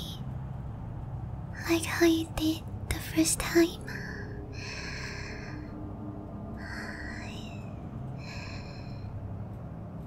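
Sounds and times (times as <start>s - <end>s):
low ambient drone: 0.0s - 10.0s
woman breathing softly: 3.8s - 6.0s, 6.6s - 9.9s.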